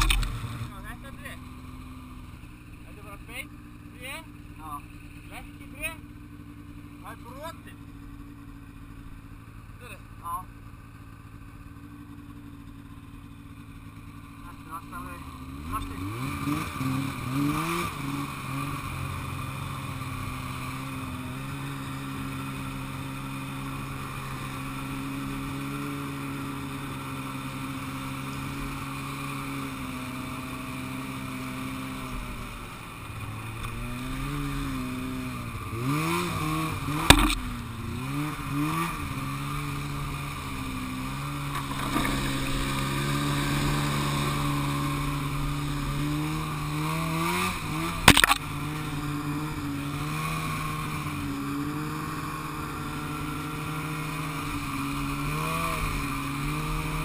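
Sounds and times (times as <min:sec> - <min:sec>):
snowmobile engine revving: 0:00.0 - 0:06.0, 0:14.1 - 0:57.0
sharp knock: 0:37.0 - 0:37.5, 0:48.1 - 0:48.4.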